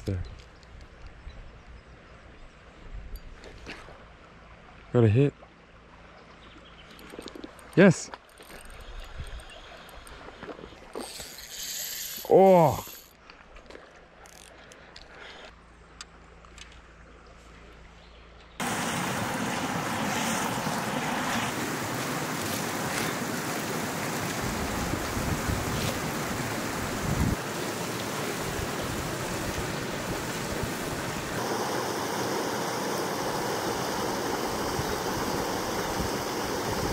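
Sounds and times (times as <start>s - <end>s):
creek water rushing: 18.6s - 36.9s.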